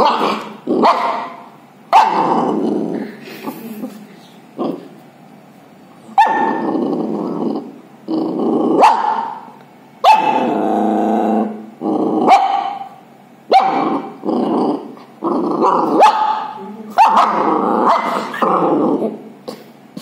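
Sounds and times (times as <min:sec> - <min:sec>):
puppy growling: 0:00.0 - 0:01.4, 0:02.0 - 0:05.0, 0:06.0 - 0:09.5, 0:10.1 - 0:12.9, 0:13.7 - 0:20.0
puppy barking: 0:00.0 - 0:02.3, 0:06.1 - 0:06.6, 0:08.8 - 0:10.5, 0:12.3 - 0:14.1, 0:15.6 - 0:18.4.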